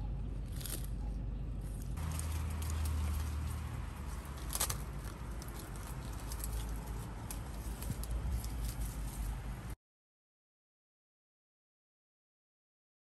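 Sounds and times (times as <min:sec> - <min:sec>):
steady low rumble: 0:00.0 - 0:09.8
sharp crackle: 0:01.7 - 0:09.8
small clicks and rustles: 0:01.7 - 0:09.8.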